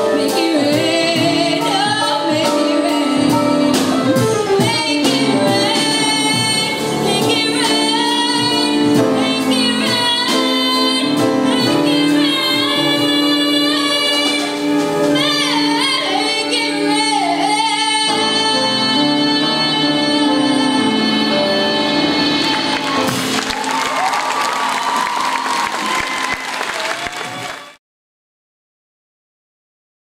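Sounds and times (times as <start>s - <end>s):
girl singing into microphone: 0.0s - 23.1s
instrumental accompaniment: 0.0s - 27.8s.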